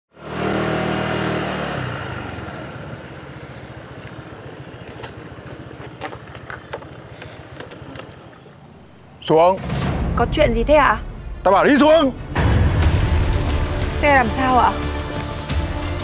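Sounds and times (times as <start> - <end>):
scooter engine puttering: 0.2 - 9.0.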